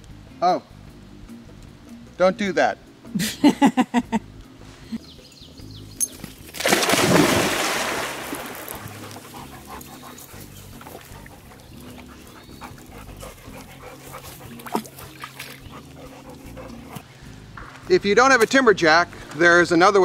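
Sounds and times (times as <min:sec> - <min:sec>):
dog splashing into pond: 0:06.4 - 0:09.6, 0:14.5 - 0:15.8
dog swimming splashes: 0:06.5 - 0:12.8, 0:14.0 - 0:17.0.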